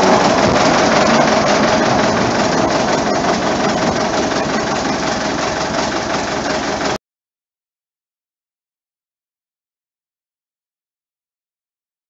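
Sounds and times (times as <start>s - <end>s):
locomotive engine droning: 0.0s - 7.0s.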